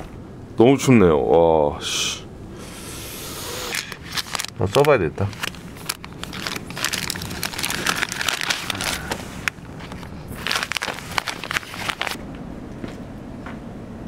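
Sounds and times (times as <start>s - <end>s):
packaging crinkling and rustling: 3.8s - 12.2s.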